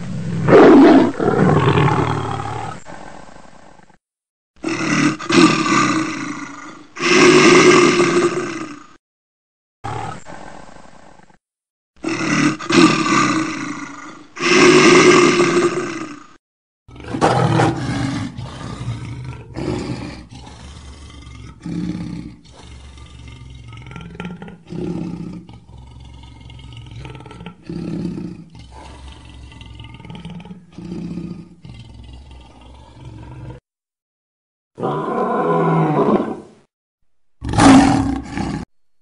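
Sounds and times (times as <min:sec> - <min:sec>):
lion roaring: 0:00.4 - 0:02.8, 0:16.9 - 0:33.6, 0:34.8 - 0:36.5, 0:37.4 - 0:38.7
lion growling: 0:16.9 - 0:33.7, 0:34.8 - 0:36.5, 0:37.4 - 0:38.7.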